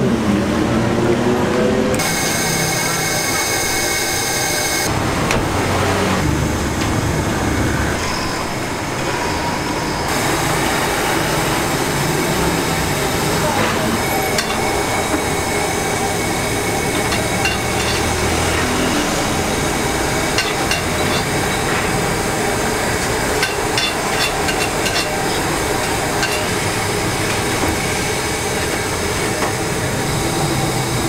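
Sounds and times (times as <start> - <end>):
street traffic noise: 0.0 - 31.0
metal scraper clinking on bowl: 14.4 - 14.8, 16.9 - 18.7, 20.4 - 21.6, 23.4 - 26.7.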